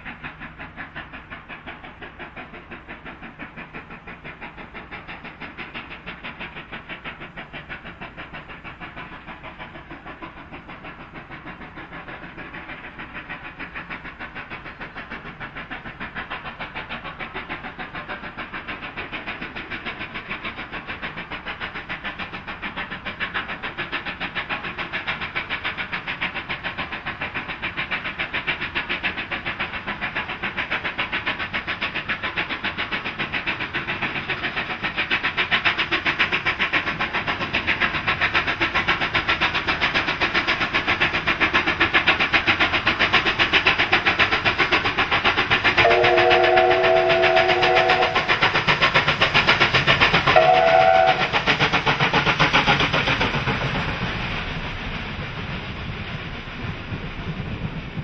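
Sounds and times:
steam locomotive exhaust beating: 0.0 - 58.0
steam whistle chord: 45.8 - 48.2, 50.4 - 51.2.

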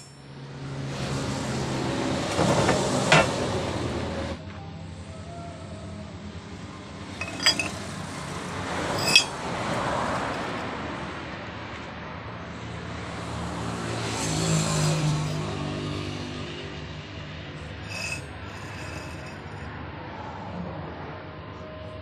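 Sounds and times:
steel pipes clinking: 7.2 - 8.0, 8.9 - 9.4, 17.8 - 19.6.

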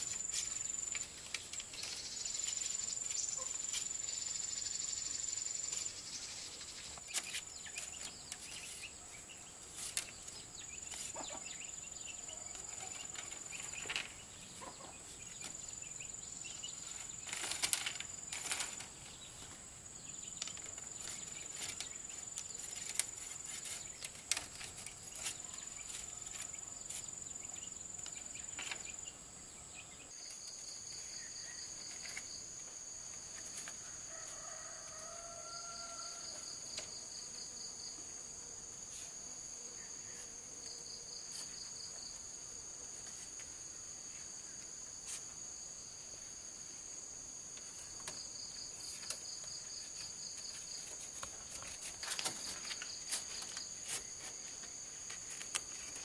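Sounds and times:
high insect drone: 0.0 - 56.0
bamboo strips clattering: 9.6 - 11.4, 16.8 - 19.6, 20.3 - 27.1, 49.9 - 56.0.

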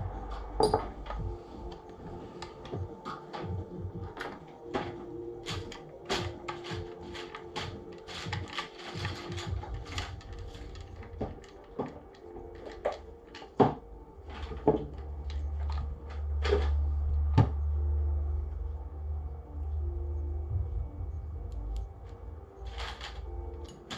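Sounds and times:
low rumble: 0.0 - 4.3, 12.4 - 23.9
rifle parts clicking and knocking: 0.4 - 1.8, 2.4 - 16.8.

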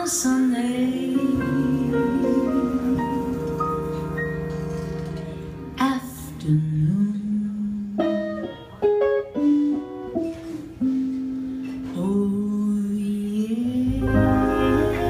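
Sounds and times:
woman singing: 0.0 - 8.4, 11.8 - 15.0
bass: 0.0 - 15.0
plucked guitar notes: 1.0 - 6.3, 13.9 - 15.0.

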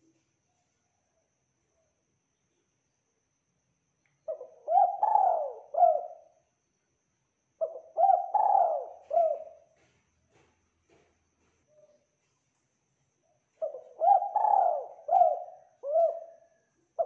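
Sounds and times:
dove cooing: 4.3 - 6.3, 7.6 - 9.8, 13.6 - 17.0.

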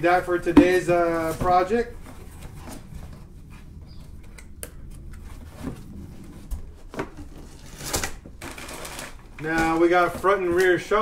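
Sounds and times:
low steady hum: 0.0 - 11.0
packaging rustling: 6.8 - 10.8.

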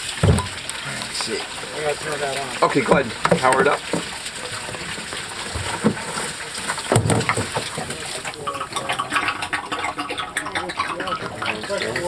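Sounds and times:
water rushing from a hose: 0.0 - 12.0.

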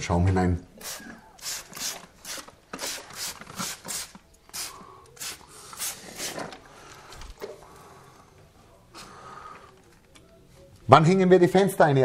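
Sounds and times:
spray bottle misting hisses: 0.8 - 6.5.

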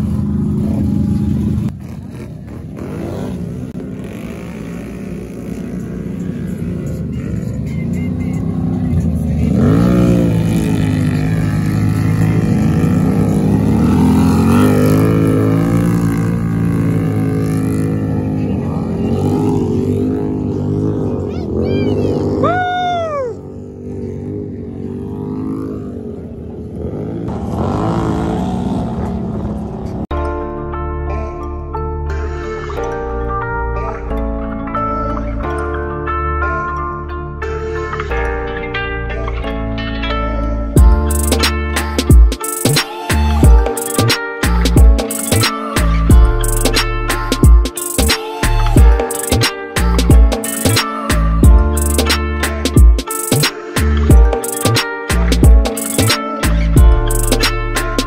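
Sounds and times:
quad engine revving: 0.0 - 30.0
atv engine running: 0.0 - 30.1, 43.2 - 53.0, 53.8 - 58.0.

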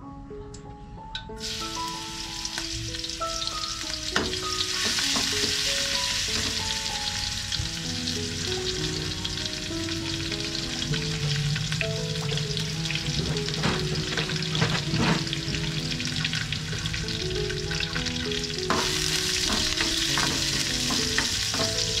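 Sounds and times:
food sizzling in hot oil: 1.4 - 22.0
metal ladle knocking pan: 4.1 - 5.6, 18.7 - 22.0.

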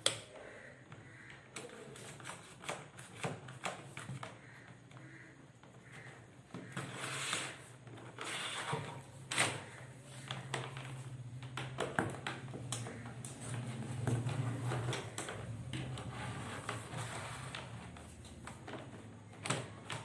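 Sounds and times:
wire scraping through conduit: 6.6 - 10.1, 13.4 - 18.3.

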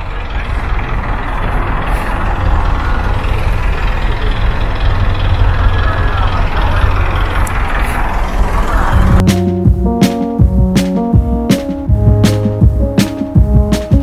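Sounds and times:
motor vehicle engine rumble: 0.0 - 14.0.

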